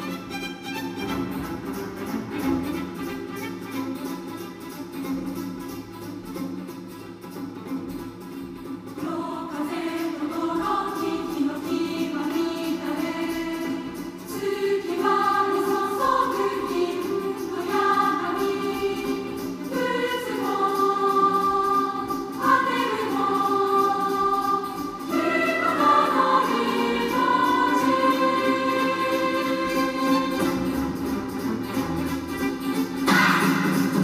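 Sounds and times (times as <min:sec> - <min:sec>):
slow choir-like music on car speakers: 0:09.0 - 0:30.7.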